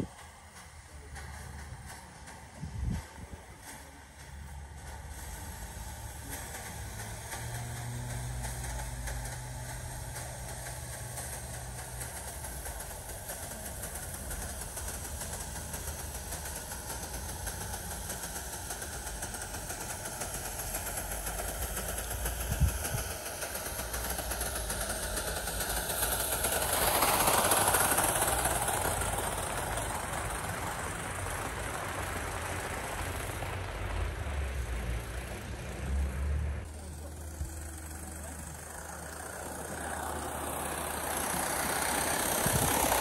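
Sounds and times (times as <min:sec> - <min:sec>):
model steam locomotive running: 0:00.0 - 0:43.0.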